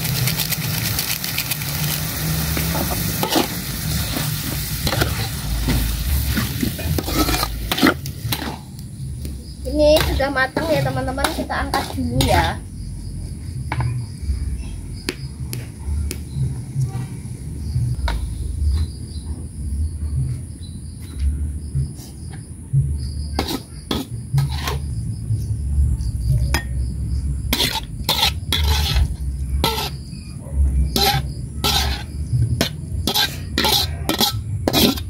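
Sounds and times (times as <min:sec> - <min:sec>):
insects chirping: 0:00.0 - 0:35.0
metal spatula scraping a wok: 0:02.1 - 0:08.7, 0:09.9 - 0:12.6, 0:23.4 - 0:24.9, 0:27.5 - 0:30.1, 0:30.9 - 0:35.0
steady low rumble: 0:03.1 - 0:23.4, 0:24.1 - 0:33.6.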